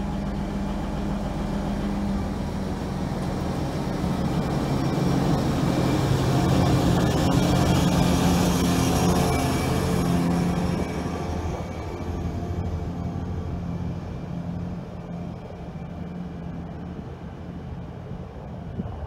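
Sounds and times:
diesel locomotive engine drone: 0.0 - 19.0.

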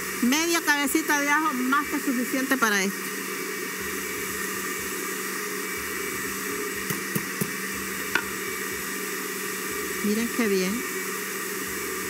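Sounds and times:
blender running: 0.0 - 12.0.

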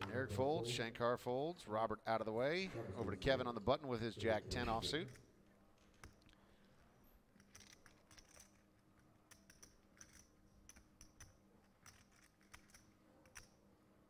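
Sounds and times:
low steady hum: 0.0 - 14.0
poker chips clicking: 7.3 - 13.6.

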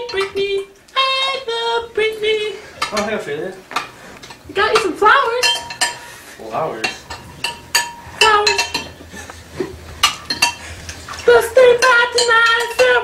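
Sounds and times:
metal spoon clinking in bowl: 5.4 - 6.0, 6.8 - 9.0, 10.0 - 13.0.

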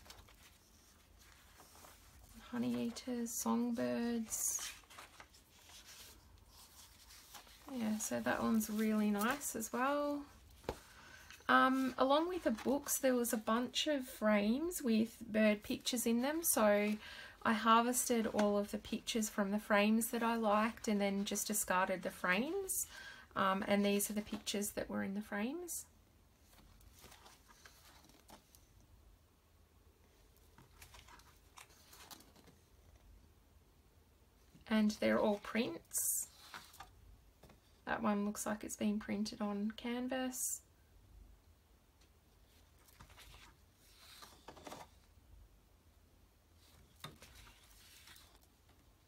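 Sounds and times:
paper prints rustling and sliding: 0.0 - 13.8, 26.4 - 28.7, 30.4 - 33.0, 35.1 - 37.6, 42.5 - 45.1, 46.6 - 48.8.

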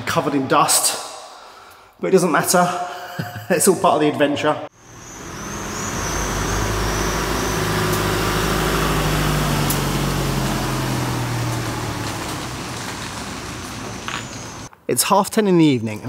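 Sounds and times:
vehicle engine running: 4.7 - 14.7.

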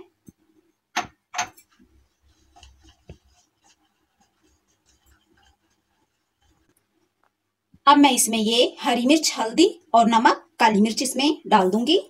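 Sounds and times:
batter stirred in plastic bowl: 1.5 - 7.1.

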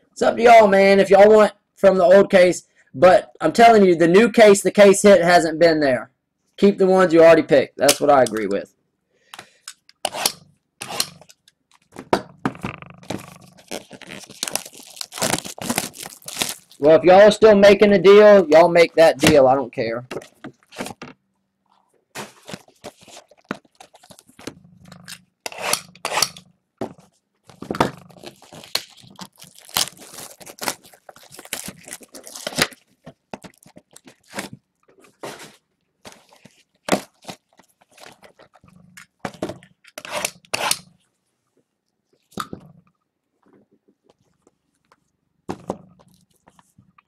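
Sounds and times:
plastic wrapping tearing and crinkling: 12.9 - 16.9, 22.2 - 26.4, 27.5 - 34.6, 36.1 - 38.6.

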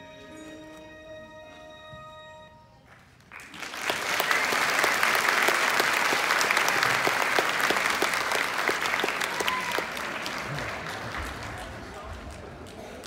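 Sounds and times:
audience applause: 2.9 - 13.0.

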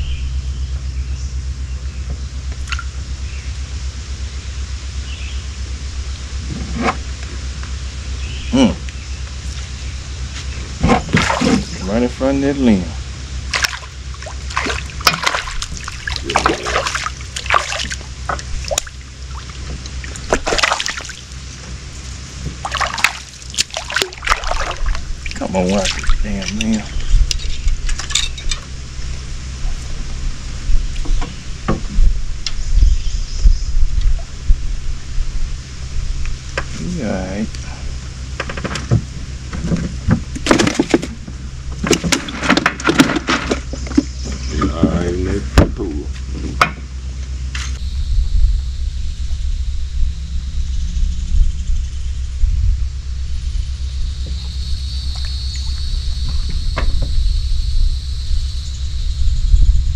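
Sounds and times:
steady low hum: 0.0 - 59.9
fish splashing at water surface: 11.1 - 11.7, 13.5 - 21.5, 22.5 - 26.9
fishing gear clattering: 22.6 - 28.7, 39.7 - 44.8.

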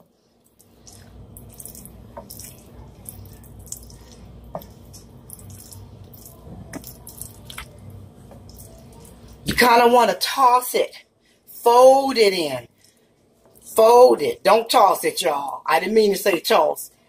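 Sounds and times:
spoon stirring thick filling: 0.0 - 9.7
steady low hum: 0.0 - 16.2.

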